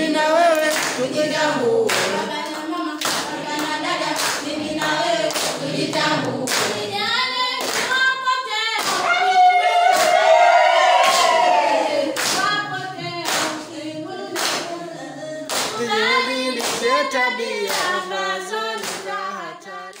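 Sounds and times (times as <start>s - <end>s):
group singing unaccompanied: 0.0s - 20.0s
hand claps: 0.5s - 1.1s, 1.9s - 6.8s, 7.6s - 8.1s, 8.8s - 9.2s, 9.9s - 10.2s, 11.0s - 11.4s, 12.1s - 12.6s, 13.2s - 13.7s, 14.4s - 14.7s, 15.5s - 15.8s, 16.6s - 18.0s, 18.8s - 19.2s.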